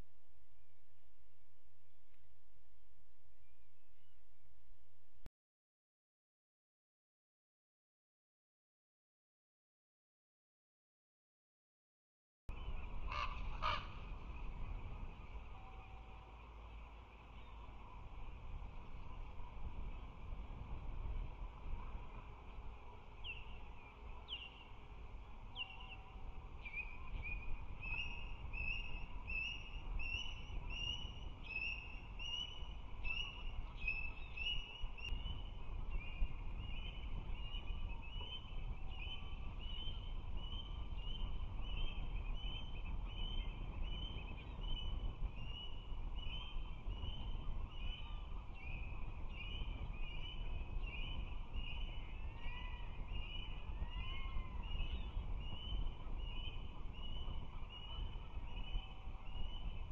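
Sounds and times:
low steady rumble: 0:12.5 - 0:59.9.

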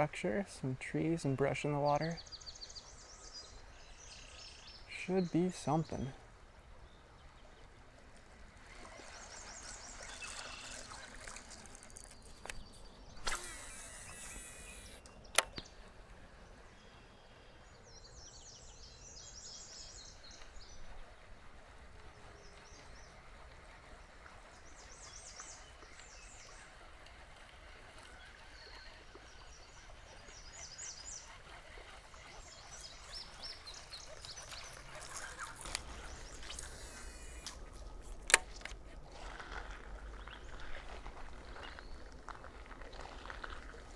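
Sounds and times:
birds singing: 0:00.1 - 0:07.7, 0:08.8 - 0:38.2
brief hiss: 0:13.2 - 0:15.0
sharp click: 0:13.2 - 0:15.7.

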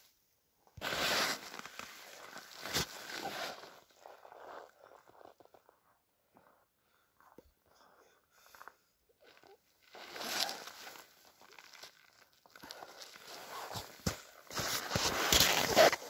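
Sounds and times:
rustling and crunching of snow: 0:00.8 - 0:05.5, 0:09.8 - 0:16.0.

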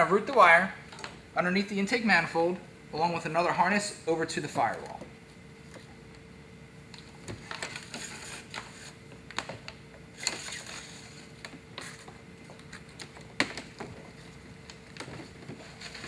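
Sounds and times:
faint steady hum: 0:00.0 - 0:16.0
wire handling clicks and scrapes: 0:06.9 - 0:16.0.

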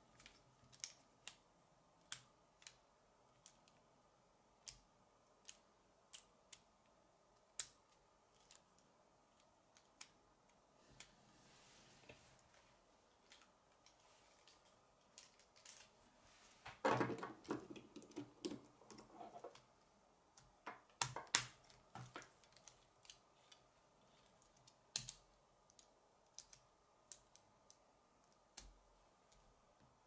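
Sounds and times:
plastic pieces clicking and snapping: 0:00.1 - 0:01.4, 0:07.5 - 0:10.2, 0:20.4 - 0:23.6, 0:24.4 - 0:27.4.

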